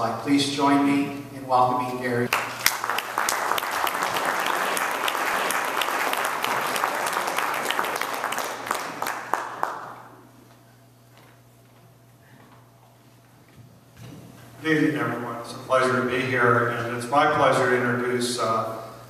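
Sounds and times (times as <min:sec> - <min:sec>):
low steady hum: 0:00.0 - 0:19.0
audience applauding: 0:02.3 - 0:10.2.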